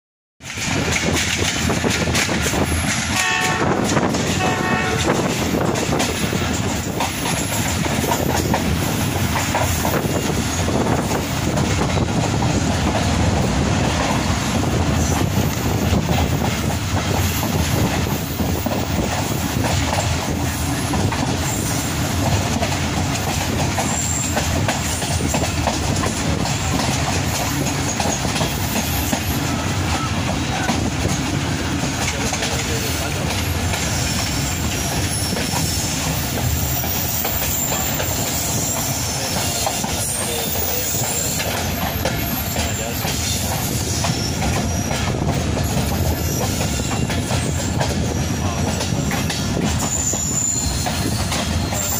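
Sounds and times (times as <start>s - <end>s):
train wheels rumbling on rails: 0.4s - 51.9s
train horn blasts: 3.1s - 5.4s.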